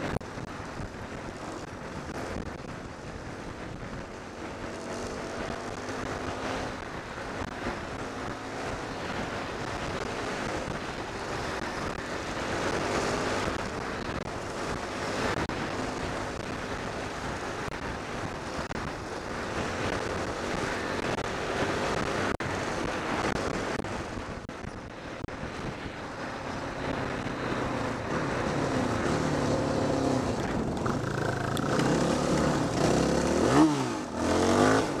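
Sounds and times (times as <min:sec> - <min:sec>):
wind noise on microphone: 0:00.0 - 0:35.0
dirt bike engine revving: 0:26.6 - 0:35.0.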